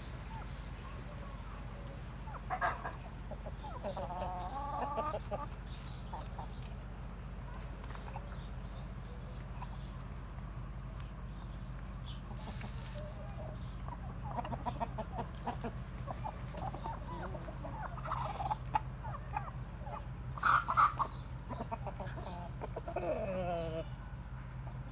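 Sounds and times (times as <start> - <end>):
chickens clucking: 0.0 - 24.9
chicken drawn-out falling call: 14.2 - 23.9.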